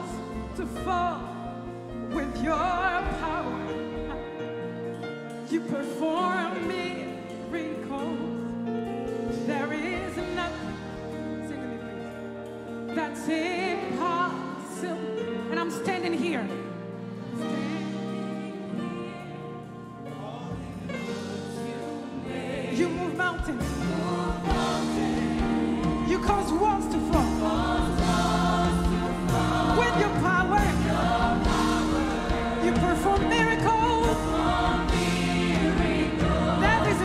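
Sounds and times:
keyboard chords: 0.0 - 37.0
woman singing lead: 0.0 - 37.0
backing singers: 9.3 - 37.0
drums: 20.7 - 37.0
bass guitar: 23.8 - 37.0.

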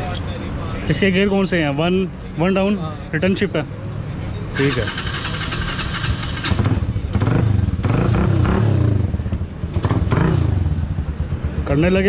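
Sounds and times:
motorcycle engine revving: 4.6 - 11.7.

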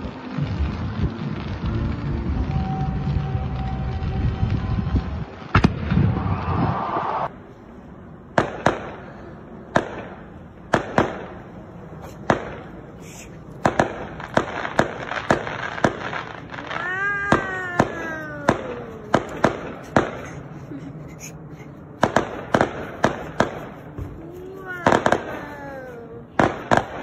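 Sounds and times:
fireworks bangs: 0.0 - 7.3, 8.3 - 21.4, 22.0 - 27.0.

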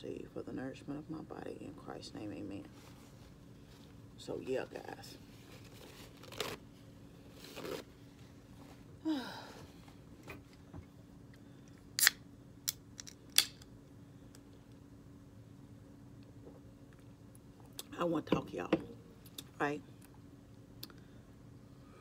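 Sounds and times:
paper napkin rustling: 5.2 - 8.6.

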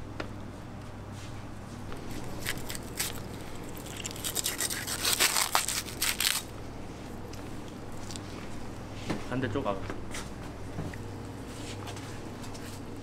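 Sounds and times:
knife scraping through fish skin: 4.0 - 6.4.

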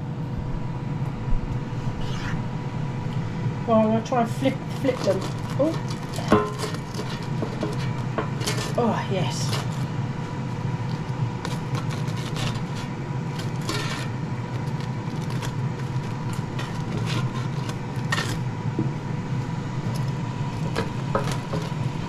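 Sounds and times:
air fryer fan hum: 0.0 - 22.0
spatula scraping metal basket: 4.3 - 18.5.

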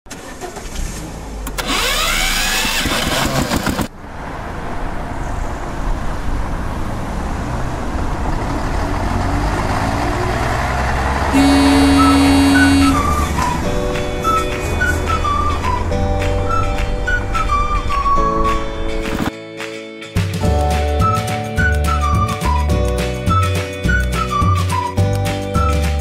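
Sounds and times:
motor vehicle engine running: 0.4 - 17.7
loud steady blaring tone: 11.4 - 13.7.

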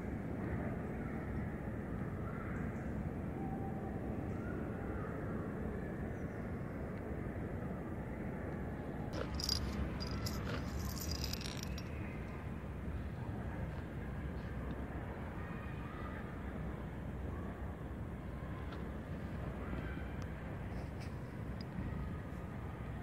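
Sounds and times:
low outdoor rumble: 7.8 - 15.6.

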